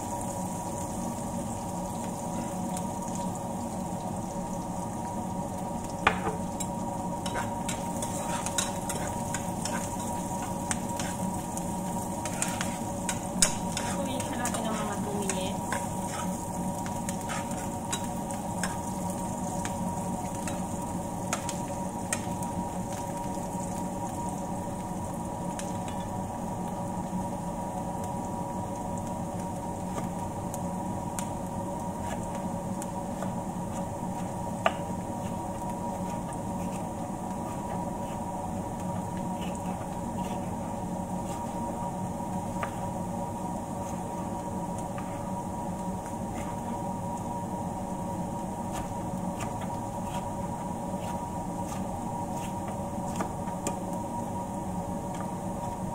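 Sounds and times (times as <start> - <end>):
onions sizzling in pan: 0.0 - 55.9
steady low hum: 0.0 - 55.9
spoon stirring: 6.6 - 11.3, 12.2 - 16.4.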